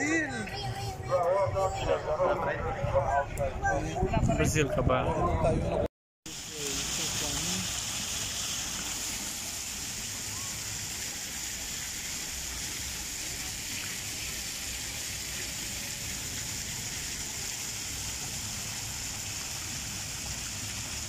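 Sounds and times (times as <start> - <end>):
fountain jets splashing into pool: 6.3 - 21.0.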